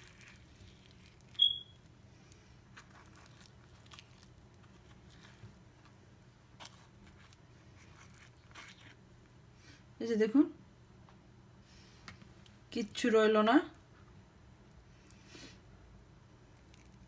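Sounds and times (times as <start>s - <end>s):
spoon scraping avocado: 6.6s - 9.0s.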